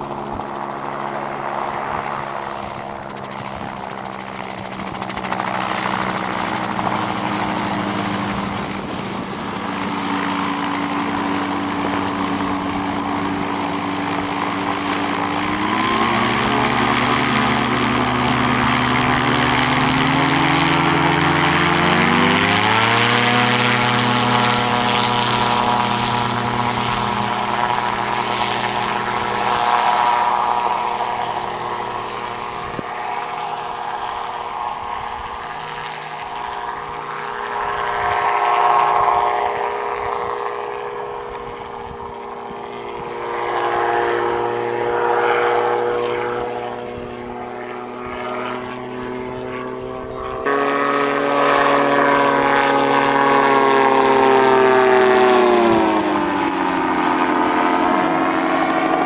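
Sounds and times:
gyroplane engine running: 0:00.0 - 0:38.2.

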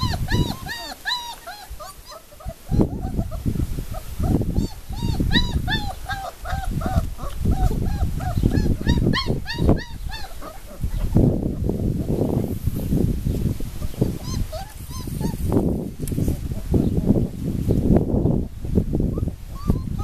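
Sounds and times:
puppies whimpering and squeaking: 0:00.0 - 0:12.4, 0:13.8 - 0:15.6, 0:19.2 - 0:20.0
low gusty noise: 0:00.0 - 0:20.0.

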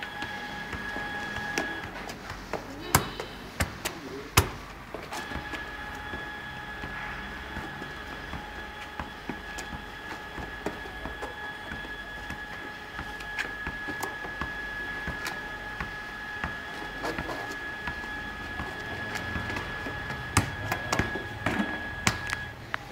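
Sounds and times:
steady high whine: 0:00.0 - 0:22.9.

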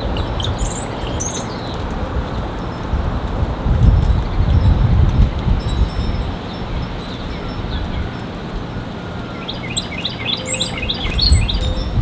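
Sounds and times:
songbird chirping: 0:00.0 - 0:02.9, 0:04.1 - 0:12.0
wind rumbling on microphone: 0:00.0 - 0:12.0
wind chimes: 0:04.0 - 0:08.2, 0:10.4 - 0:12.0.

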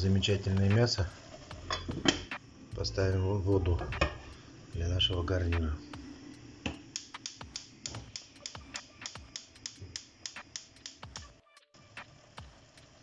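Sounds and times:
gas hob igniter clicking: 0:01.6 - 0:02.4, 0:03.1 - 0:05.6, 0:06.6 - 0:11.2.

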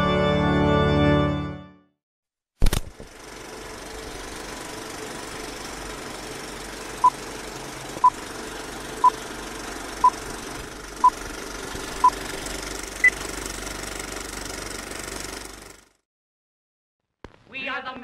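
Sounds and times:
film projector clattering: 0:02.6 - 0:15.9.

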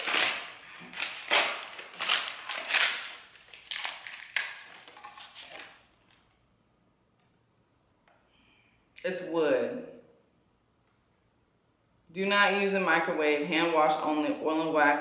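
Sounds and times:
packing paper rustling and tearing: 0:00.0 - 0:05.9.

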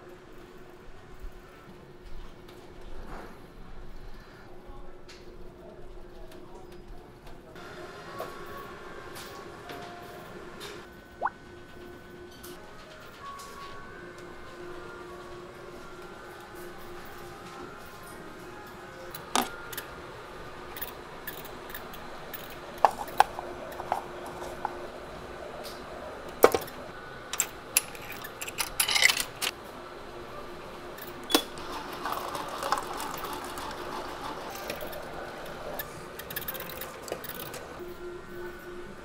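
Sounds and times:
vending machine running: 0:07.6 - 0:39.0
coins clinking and button clicks: 0:26.4 - 0:29.5, 0:34.4 - 0:37.7.

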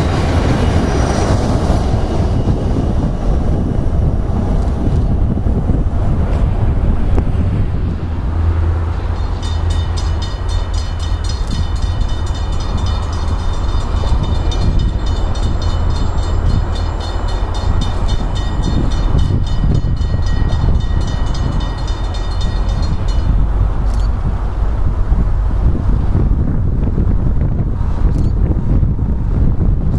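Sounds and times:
low rumble: 0:00.0 - 0:28.0
crossing bell ringing rapidly: 0:09.0 - 0:24.2.

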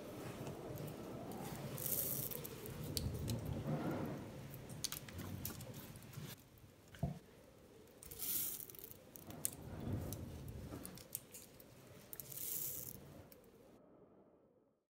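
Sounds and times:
grain pouring hiss: 0:01.5 - 0:02.8, 0:08.1 - 0:09.0, 0:12.2 - 0:13.1.

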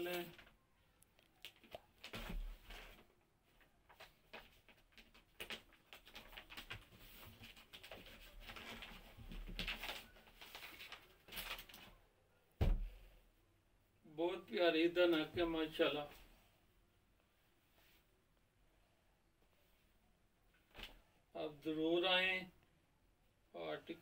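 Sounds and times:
plastic packaging crinkling: 0:07.6 - 0:11.9.

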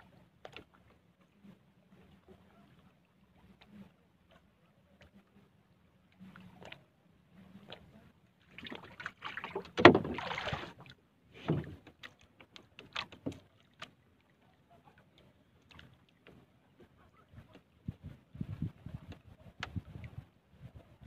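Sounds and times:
water splashing: 0:00.0 - 0:20.2
water sloshing around boat: 0:00.0 - 0:21.0
knocks on wooden boat: 0:09.8 - 0:10.3.

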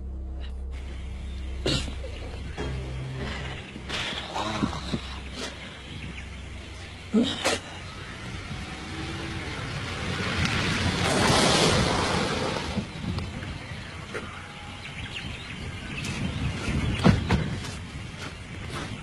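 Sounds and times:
rushing noise: 0:00.0 - 0:14.0
outdoor background noise: 0:00.0 - 0:19.0.

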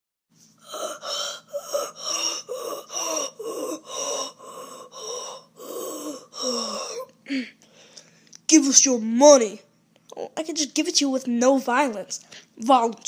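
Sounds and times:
person gasping: 0:00.6 - 0:08.2.

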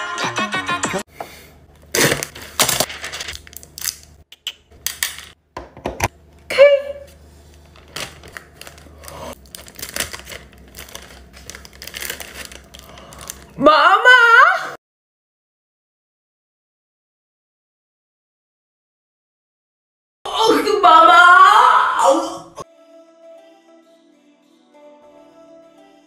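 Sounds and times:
small hard objects clattering: 0:09.5 - 0:13.5.

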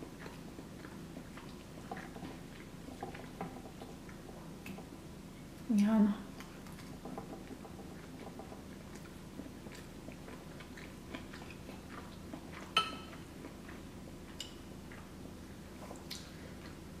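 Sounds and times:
person chewing: 0:00.0 - 0:05.6, 0:06.3 - 0:17.0
wet mouth clicks: 0:16.0 - 0:16.4.

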